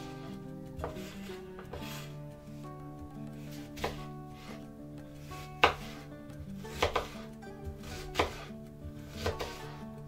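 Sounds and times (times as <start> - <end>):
soft background music: 0.0 - 10.0
knife chopping on wooden board: 0.8 - 2.1, 3.4 - 4.5, 5.5 - 8.5, 9.1 - 9.8.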